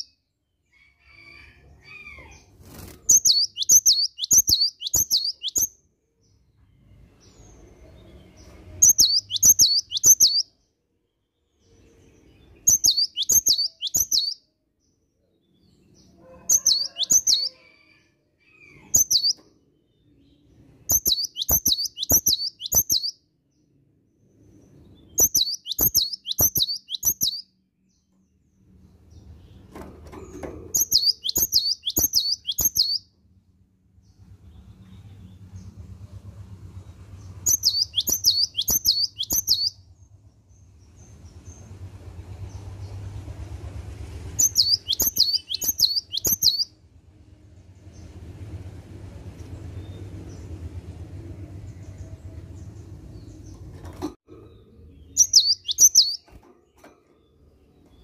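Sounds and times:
bird singing whistled notes: 3.1s - 5.8s, 8.8s - 10.5s, 12.6s - 14.4s, 20.9s - 23.2s, 25.0s - 27.5s, 30.8s - 33.0s, 37.4s - 39.8s, 44.4s - 46.7s, 55.0s - 56.3s.

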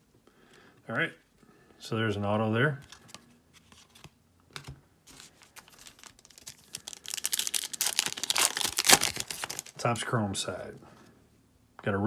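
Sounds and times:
foil wrapper crinkling: 5.1s - 9.8s.

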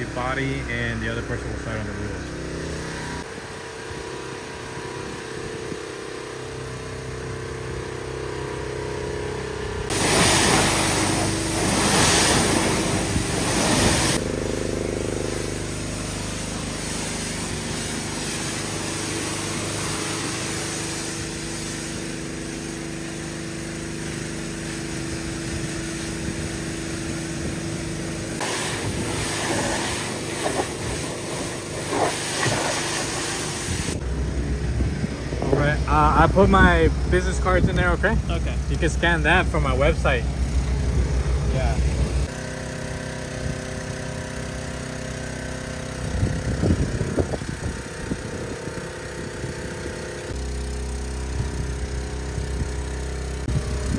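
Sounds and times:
small engine running: 0.0s - 53.9s
pressure washer spray hissing: 9.9s - 34.0s.

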